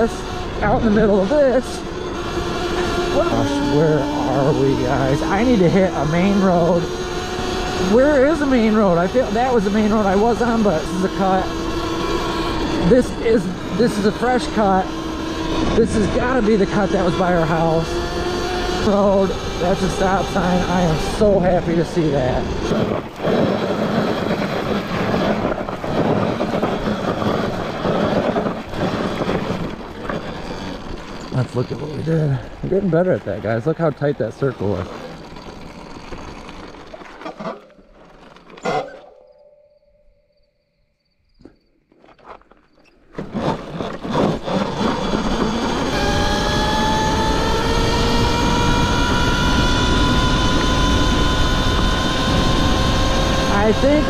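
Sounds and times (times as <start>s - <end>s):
electric dirt bike motor: 0.0s - 39.3s, 42.0s - 54.0s
tyre skidding: 0.8s - 39.2s.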